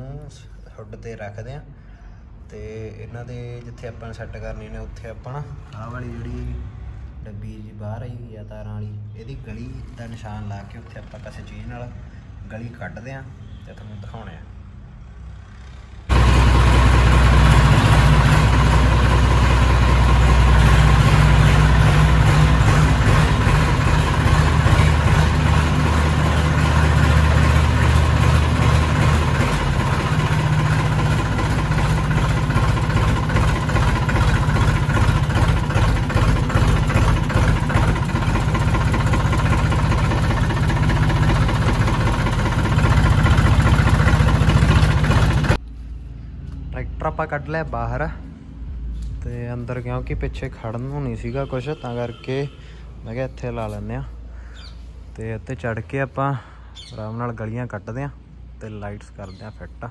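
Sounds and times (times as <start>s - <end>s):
tractor diesel engine running: 16.1s - 45.6s.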